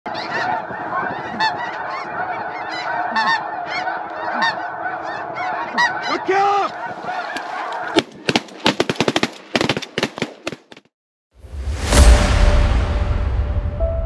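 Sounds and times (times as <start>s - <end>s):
geese honking: 0.1s - 8.1s.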